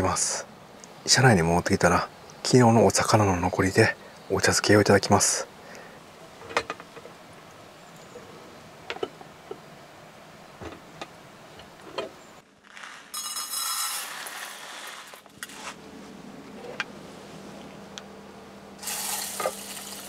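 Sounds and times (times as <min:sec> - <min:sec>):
pouring into a pot: 0:13.1 - 0:14.7, 0:18.8 - 0:20.0.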